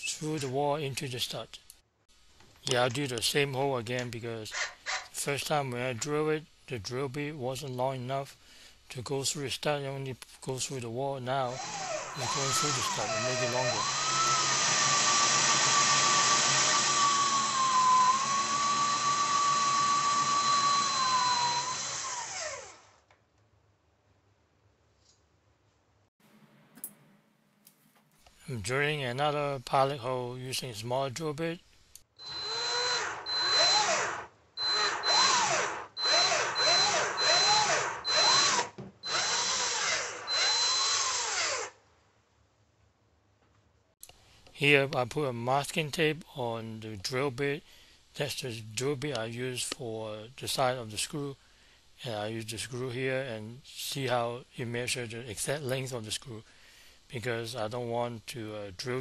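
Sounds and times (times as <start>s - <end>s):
cordless drill whining: 11.5s - 23.0s, 32.2s - 41.8s.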